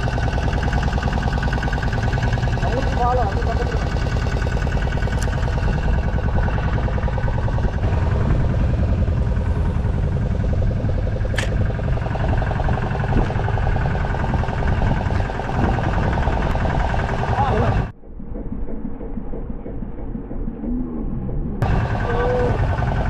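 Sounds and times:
boat engine running: 0.0s - 23.0s
sharp click: 11.3s - 11.6s.

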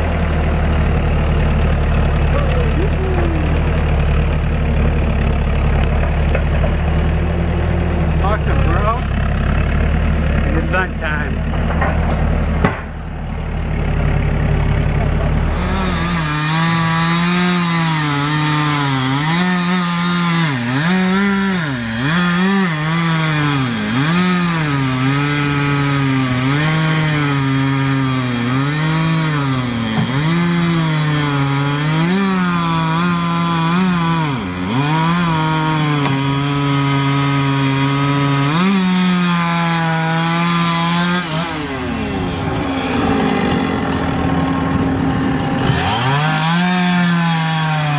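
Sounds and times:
low engine rumble: 0.0s - 17.0s, 41.4s - 45.8s
chainsaw cutting wood: 0.0s - 47.9s.

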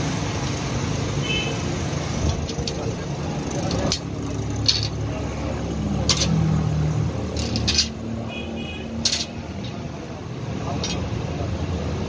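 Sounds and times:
sharp metallic clanks: 3.6s - 5.1s, 6.0s - 6.5s, 7.3s - 8.1s, 9.0s - 9.8s, 10.7s - 11.1s.

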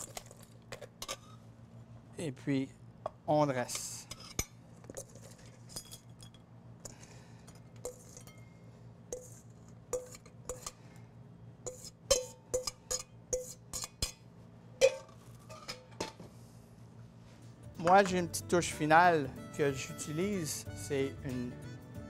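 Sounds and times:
utensil clinking in metal bowl: 7.5s - 8.5s, 9.1s - 10.8s.

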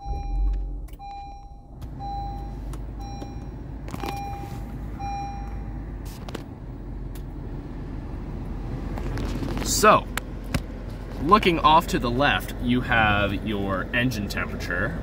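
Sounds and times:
seat-belt reminder chime: 0.0s - 5.8s
car engine idling: 0.0s - 15.0s.

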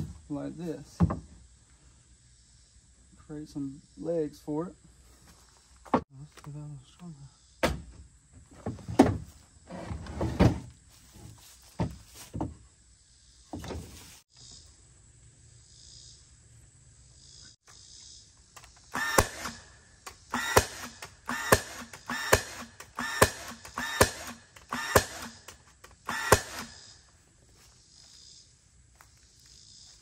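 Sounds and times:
nail gun shots: 18.9s - 26.8s.

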